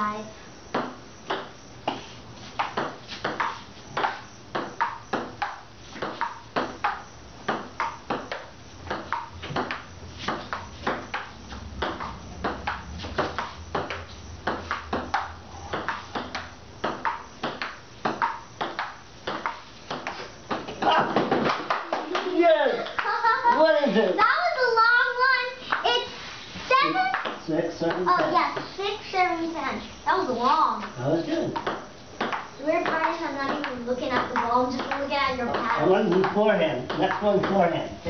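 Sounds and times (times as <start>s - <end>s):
table tennis ball clicking: 13.4s - 20.6s, 31.6s - 37.6s.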